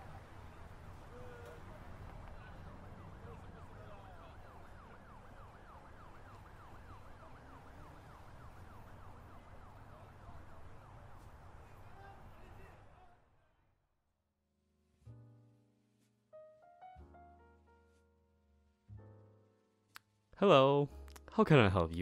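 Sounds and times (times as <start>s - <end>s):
low street rumble: 0.0s - 13.9s
faint siren yelping: 0.9s - 12.5s.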